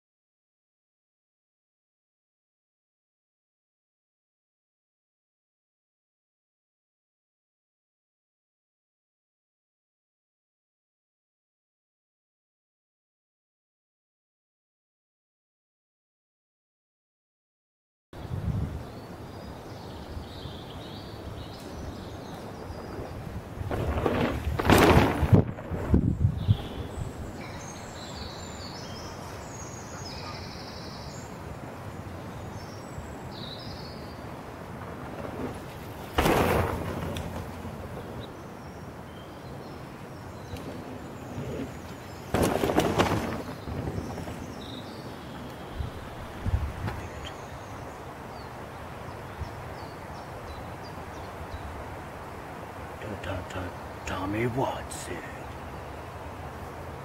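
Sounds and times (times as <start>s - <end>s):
small birds chirping: 18.2s - 23.4s, 26.0s - 34.3s, 37.9s - 51.9s, 52.9s - 56.8s
wind buffeting microphone: 18.2s - 29.8s, 30.4s - 53.0s
wind noise: 18.2s - 53.0s
steady outdoor hiss: 18.2s - 57.0s.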